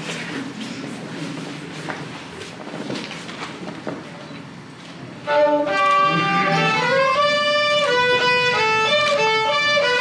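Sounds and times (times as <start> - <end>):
two fiddles playing a tune: 5.3 - 10.0.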